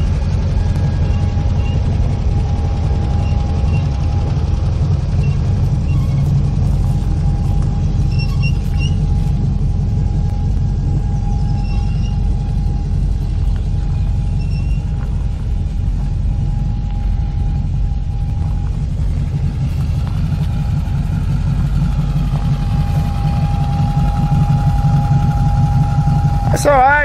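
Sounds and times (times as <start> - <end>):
faint steady whine: 0.0 - 27.0
vehicle engine rumble: 0.0 - 27.0.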